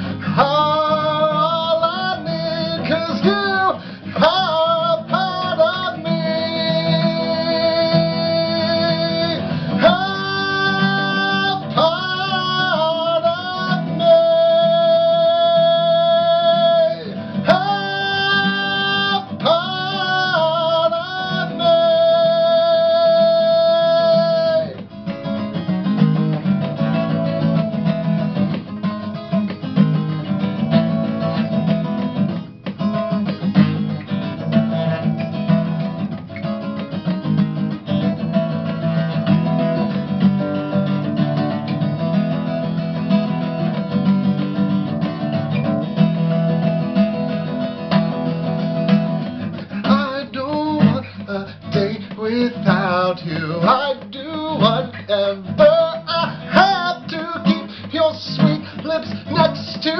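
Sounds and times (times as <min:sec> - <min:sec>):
man singing: 0:00.0 - 0:25.4, 0:37.8 - 0:59.9
strummed acoustic guitar: 0:00.0 - 0:59.9.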